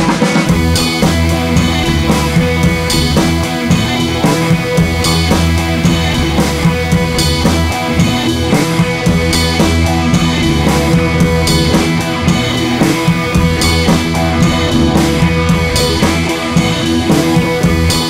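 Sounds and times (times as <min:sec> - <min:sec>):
rock music: 0:00.0 - 0:18.0.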